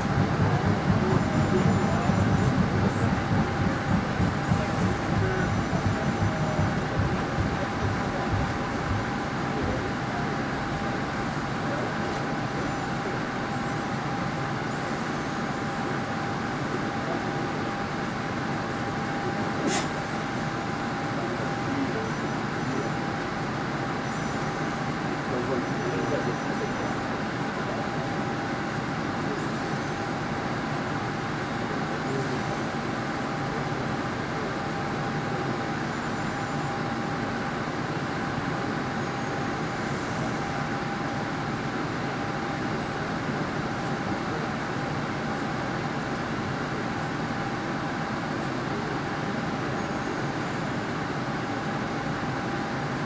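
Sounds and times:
wheels rumbling on rail: 0:00.0 - 0:13.4
constant hum: 0:00.0 - 0:53.0.

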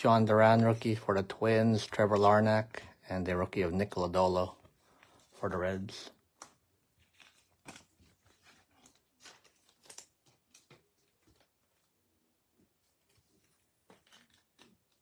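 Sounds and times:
trading cards rustling and tapping: 0:12.9 - 0:15.0.

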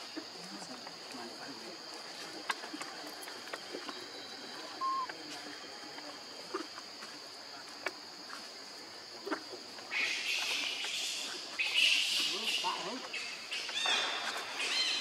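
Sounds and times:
faint insect clicks: 0:00.0 - 0:15.0
insects high-pitched drone: 0:00.0 - 0:15.0.

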